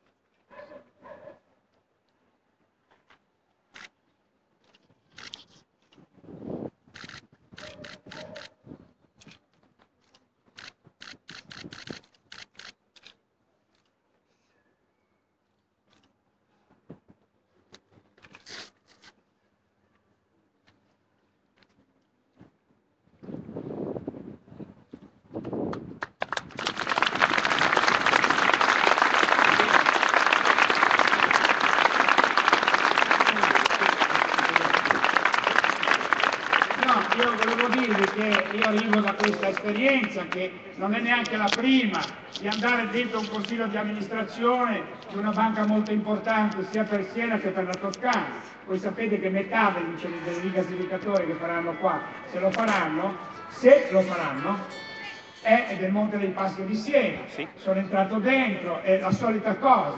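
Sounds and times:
large crowd applauding: 26.0s - 40.4s.

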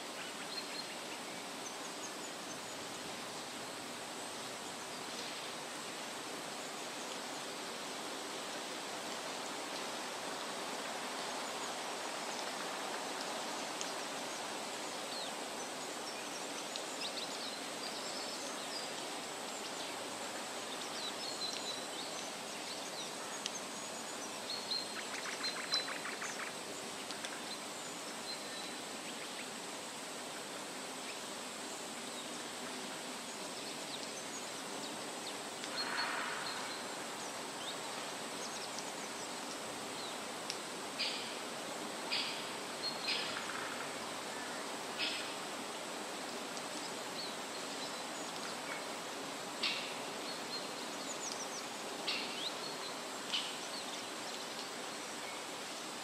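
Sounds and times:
outdoor rushing hiss: 0.0s - 56.0s
small birds chirping: 33.2s - 55.8s.

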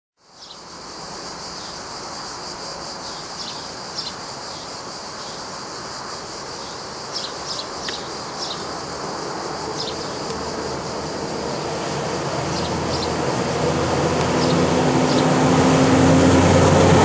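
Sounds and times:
cicadas droning: 0.2s - 17.0s.

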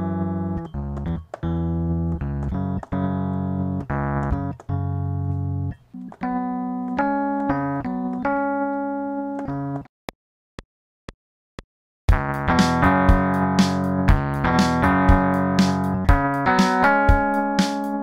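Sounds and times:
electric piano notes: 0.0s - 9.8s.

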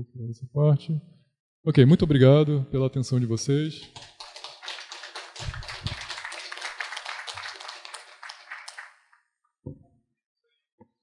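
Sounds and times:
audience applauding: 3.8s - 9.2s.

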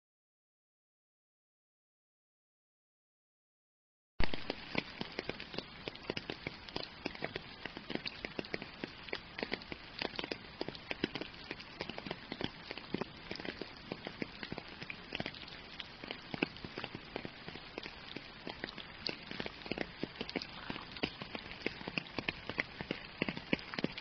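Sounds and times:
rain drop hits: 4.2s - 24.0s
steady rain: 4.2s - 24.0s.

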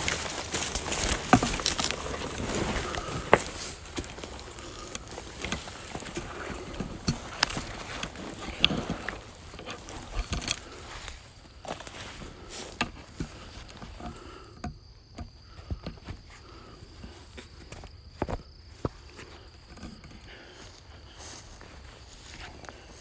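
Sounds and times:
footsteps through dry leaves: 0.0s - 9.4s
leaves rustling against clothing: 0.0s - 13.8s
twigs snapping underfoot: 0.0s - 14.2s.

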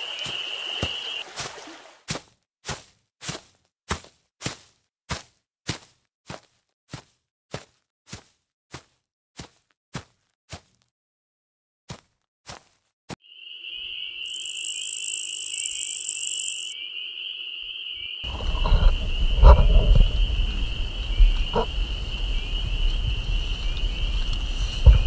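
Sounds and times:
high buzzing hiss: 13.6s - 16.8s
low rumble with knocks: 18.3s - 25.0s.

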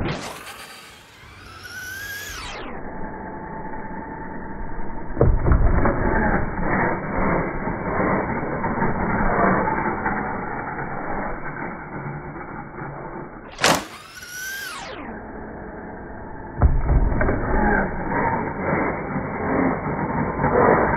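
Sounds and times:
toy car motor whine: 0.0s - 5.1s, 6.0s - 16.1s, 17.3s - 20.9s
rumble and clattering of landing: 0.0s - 20.9s
toy car hitting ramp: 0.1s - 2.5s, 13.5s - 14.9s, 16.6s - 19.7s.

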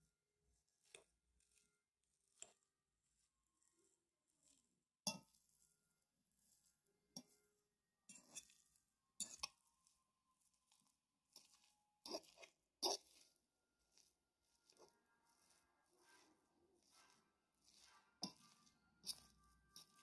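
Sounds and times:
fork clinking on a pan: 9.2s - 9.6s
potatoes crunching: 9.4s - 20.0s.

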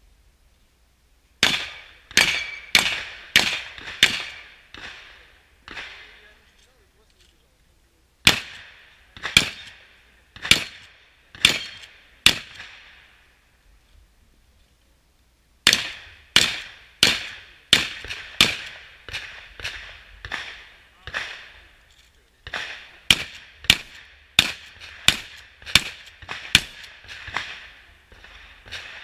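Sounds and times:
shotgun shots: 1.4s - 6.4s, 8.2s - 13.2s, 15.6s - 21.7s, 22.4s - 29.0s.

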